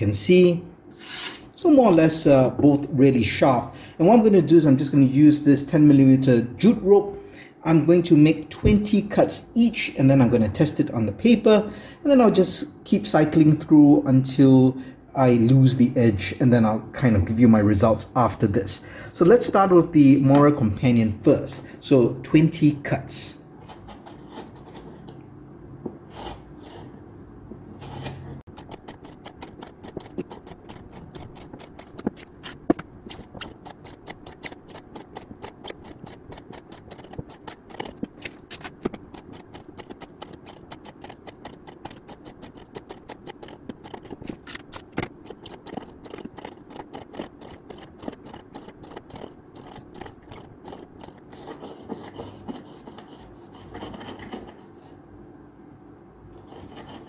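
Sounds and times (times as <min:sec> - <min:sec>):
knife slicing rope: 0:28.0 - 0:51.2.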